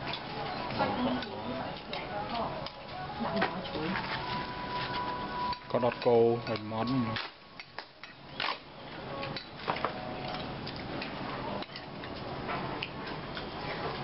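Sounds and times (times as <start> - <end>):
chopsticks clicking on ceramic bowls: 5.5 - 7.0.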